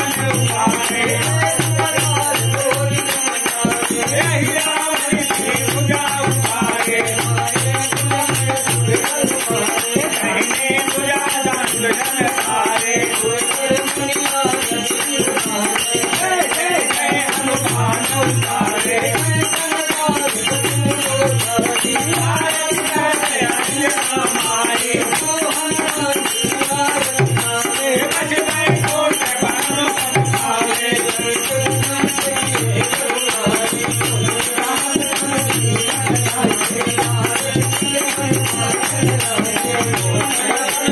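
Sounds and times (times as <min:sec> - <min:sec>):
dholak drum beats: 0:00.0 - 0:40.9
hand percussion jingling: 0:00.0 - 0:40.9
man singing: 0:00.0 - 0:40.9.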